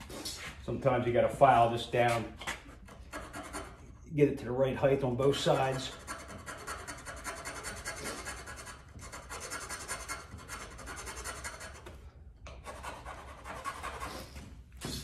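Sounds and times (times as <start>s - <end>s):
file rasping on wood: 2.8s - 3.9s, 5.5s - 14.4s.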